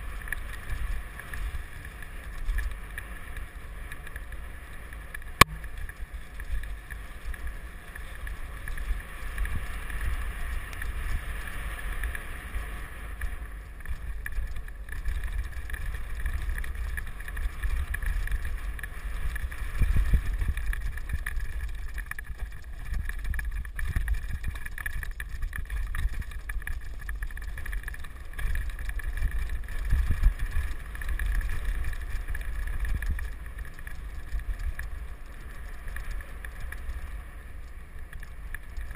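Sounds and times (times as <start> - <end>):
bike riding rumble: 0.0 - 38.9
wind on microphone: 15.1 - 37.2.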